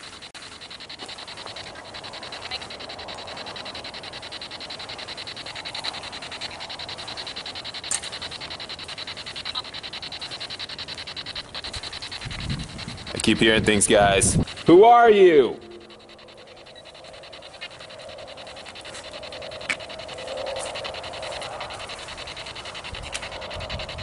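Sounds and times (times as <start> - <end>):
animal chorus high trill: 0.6 - 24.0.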